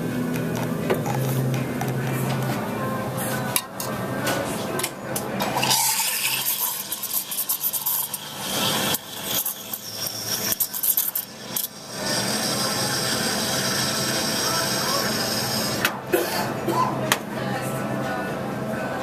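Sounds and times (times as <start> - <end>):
steam wand hissing in milk: 6.2 - 15.8.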